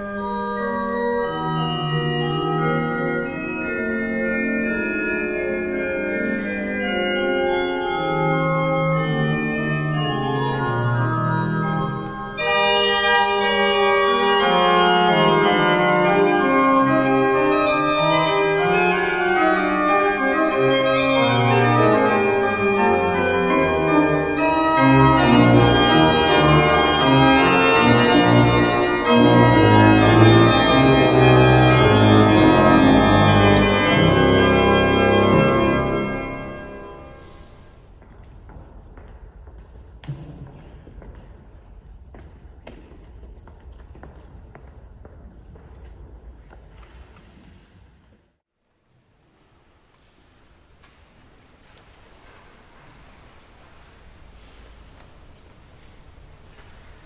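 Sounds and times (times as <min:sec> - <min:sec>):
church pipe organ playing: 0:00.0 - 0:37.8
deep organ bass notes: 0:00.9 - 0:37.2.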